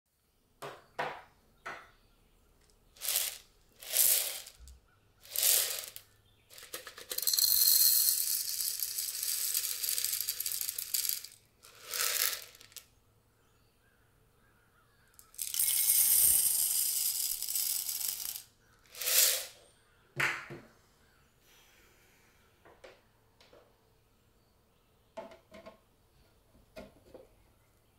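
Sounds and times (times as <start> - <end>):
popcorn kernels rattling into pot: 2.9 - 12.8, 15.2 - 19.6.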